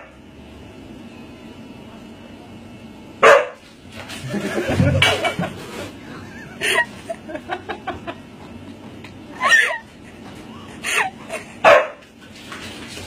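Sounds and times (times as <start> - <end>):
person laughing: 4.2 - 8.4, 9.3 - 11.6.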